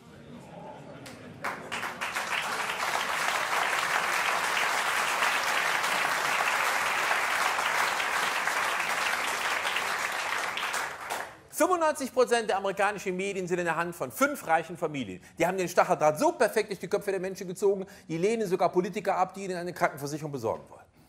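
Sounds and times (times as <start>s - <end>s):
audience applauding: 1.4s - 11.5s.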